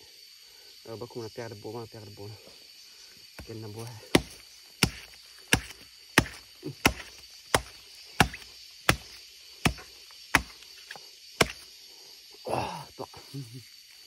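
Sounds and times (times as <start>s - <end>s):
machete chopping into earth: 3.4s - 11.7s.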